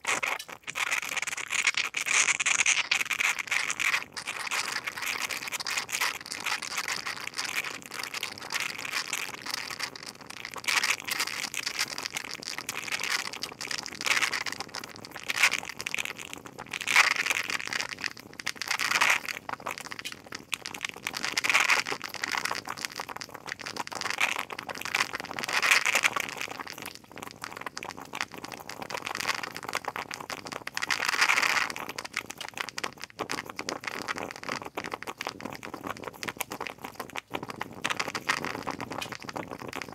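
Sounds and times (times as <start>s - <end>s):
moka pot hissing and crackling: 0.0s - 39.9s.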